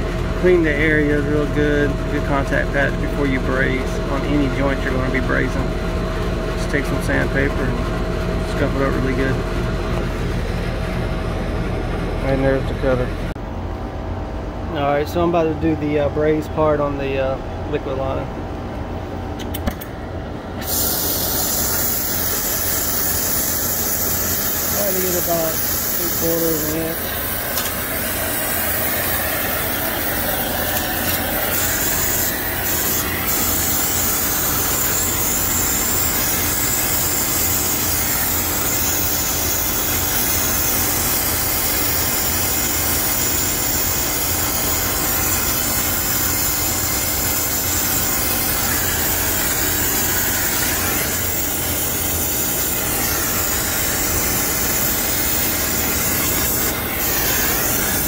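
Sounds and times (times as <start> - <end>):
torch flame hissing: 20.6 - 58.0.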